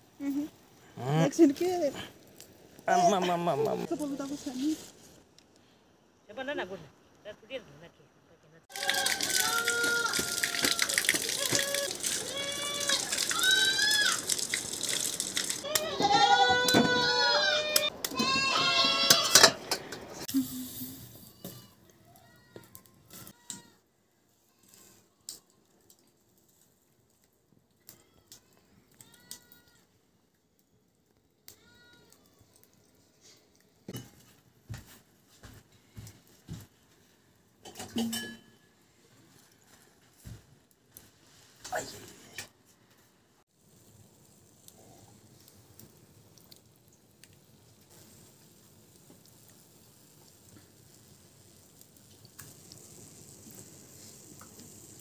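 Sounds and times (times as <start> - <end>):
water running from tap: 8.7 - 15.9.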